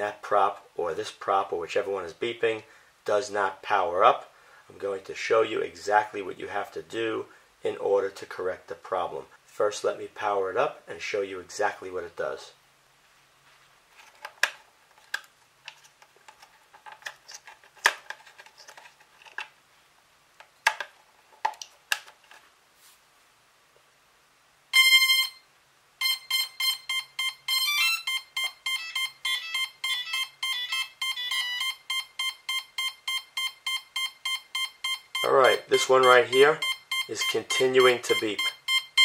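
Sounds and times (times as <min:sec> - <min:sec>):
long beep: 0:24.7 - 0:39.0
short beeps: 0:24.7 - 0:39.0.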